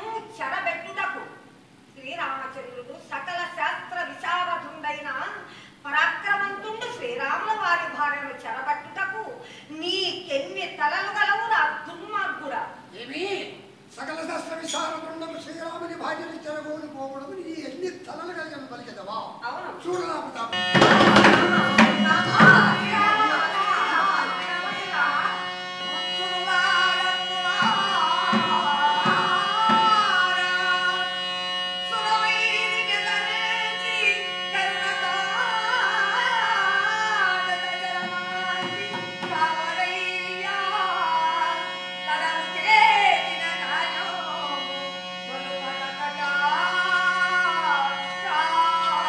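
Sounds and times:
light percussion: 20.6s - 25.3s
person singing: 20.6s - 49.0s.

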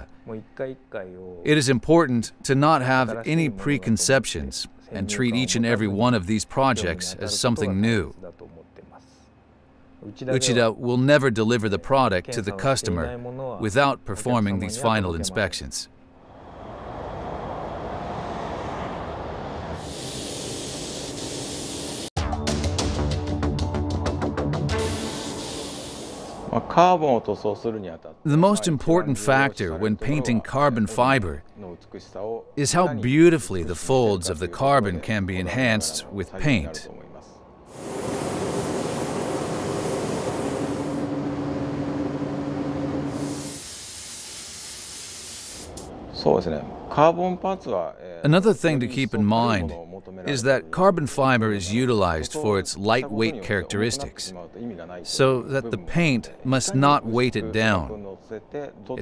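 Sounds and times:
paint spray gun hissing: 19.8s - 22.2s, 24.8s - 26.5s, 37.7s - 41.1s, 43.1s - 45.9s
music with steady beat: 22.2s - 25.5s
low hum: 37.7s - 43.2s
low rushing of air: 37.7s - 43.4s.

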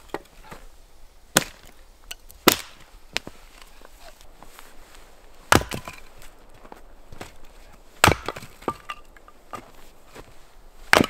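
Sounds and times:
hatchet chopping wood: 1.4s - 1.7s, 2.4s - 2.9s, 5.5s - 6.1s, 8.0s - 9.7s.

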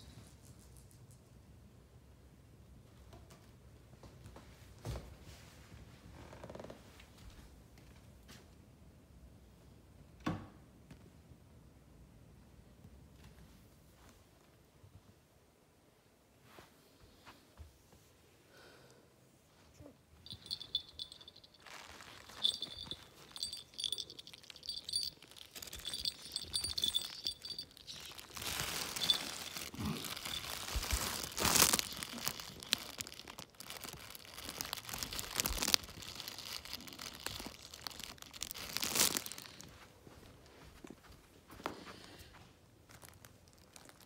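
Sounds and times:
small jingle bell tinkling: 20.2s - 39.6s
crinkly fabric rustling: 20.2s - 44.0s.

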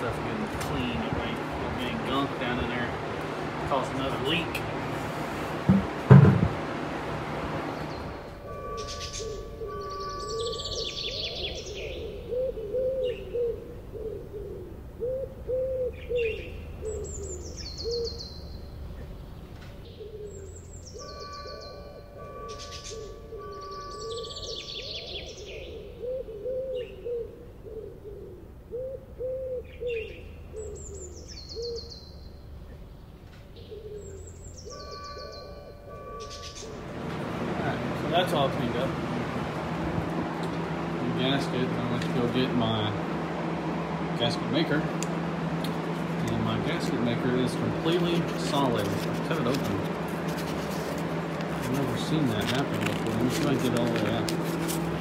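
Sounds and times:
high downward-sliding bird chirps: 7.6s - 36.8s
low hooting bird calls: 7.6s - 55.0s.

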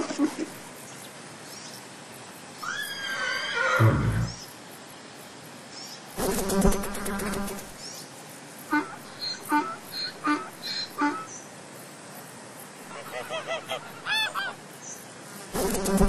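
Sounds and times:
zebra calls: 12.9s - 14.6s.

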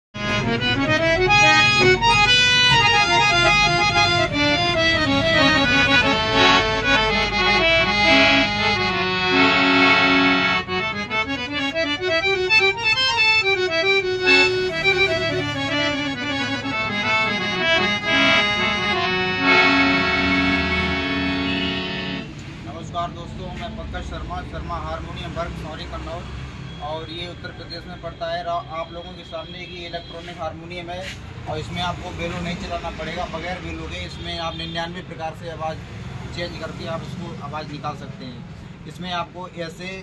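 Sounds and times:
harmonium playing quick runs: 0.2s - 22.3s.

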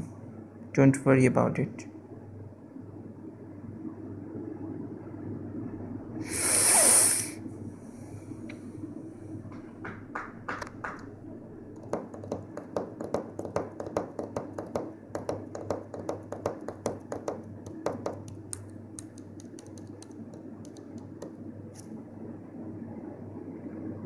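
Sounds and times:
steady low hum: 0.0s - 24.0s
light clicks and taps: 16.0s - 21.9s.

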